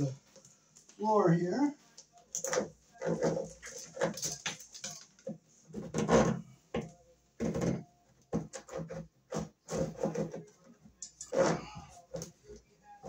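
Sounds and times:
metal cable scraping and clicking: 2.3s - 6.4s, 8.5s - 12.4s.

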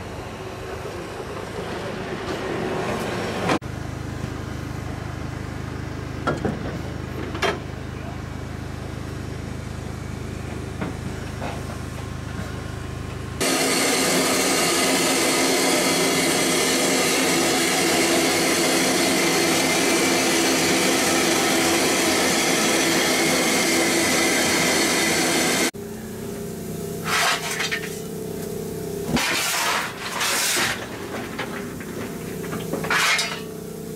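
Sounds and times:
steam hissing: 13.4s - 25.7s.

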